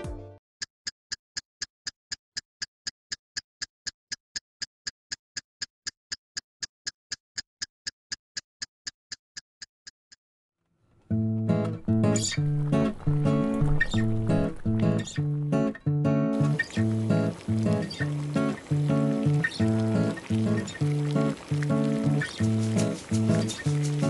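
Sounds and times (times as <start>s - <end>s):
acoustic guitar music: 11.1s - 24.0s.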